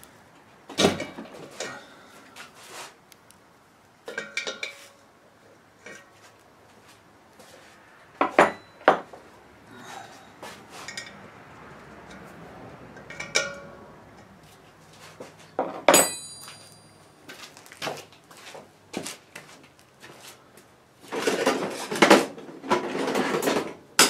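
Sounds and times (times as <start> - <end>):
metallic clank with ring: 15.9 - 17.0
tools clinking on metal cylinder: 15.9 - 17.0.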